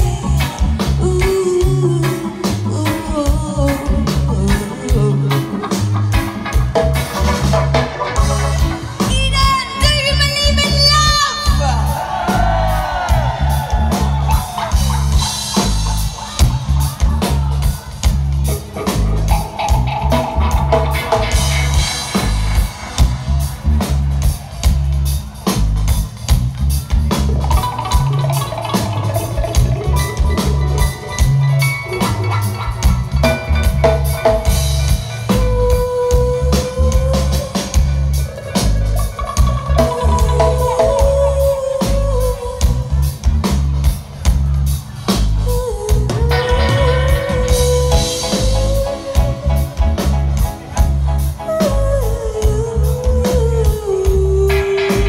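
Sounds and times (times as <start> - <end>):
deep bass line: 0.0 - 55.0
drum kit with rimshots: 0.0 - 55.0
reggae band playing: 0.0 - 55.0
melodic instrument lines: 27.1 - 42.8.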